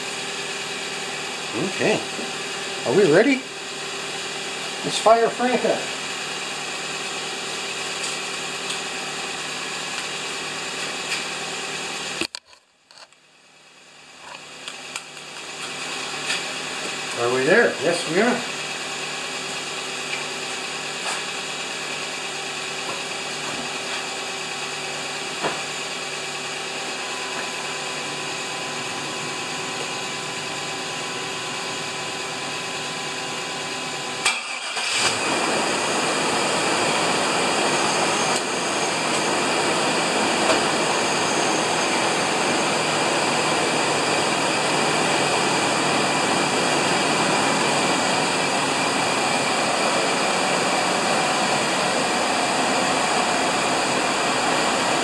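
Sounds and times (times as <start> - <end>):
truck engine idling: 14.4 - 55.0.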